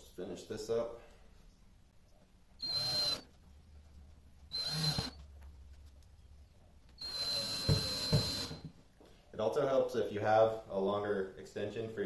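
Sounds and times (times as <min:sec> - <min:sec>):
cordless drill whining: 0:02.6 - 0:03.3, 0:04.5 - 0:05.3, 0:07.0 - 0:08.7.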